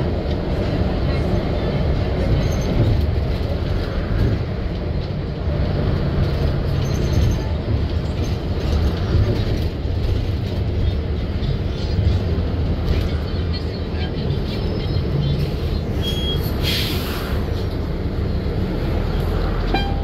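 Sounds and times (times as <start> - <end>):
bus engine and road rumble: 0.0 - 20.0.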